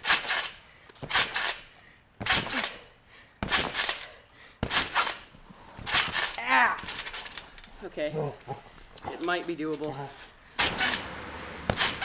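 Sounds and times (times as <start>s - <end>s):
scooter landing on trampoline: 2.2s - 2.8s, 3.4s - 4.0s, 4.6s - 7.4s, 10.6s - 12.0s
metallic rattle: 10.6s - 12.0s.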